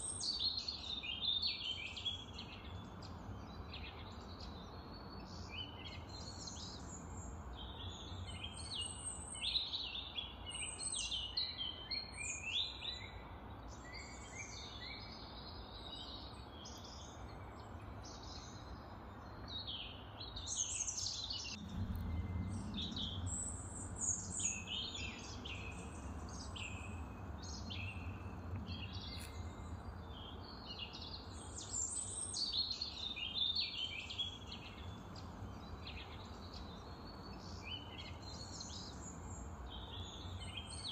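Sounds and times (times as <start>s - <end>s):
birds chirping and twittering: 0.0s - 40.9s
faint low rumble: 21.2s - 31.7s.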